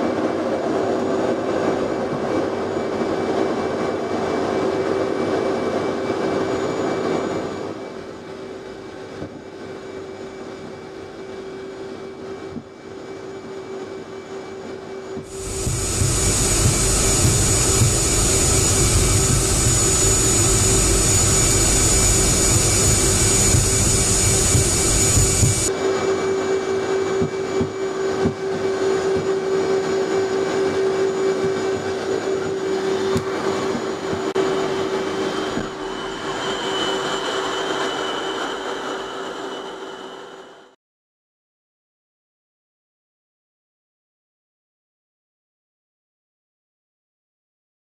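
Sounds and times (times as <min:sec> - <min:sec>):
jet engines humming: 0:00.0 - 0:40.8
high whine: 0:13.0 - 0:40.8.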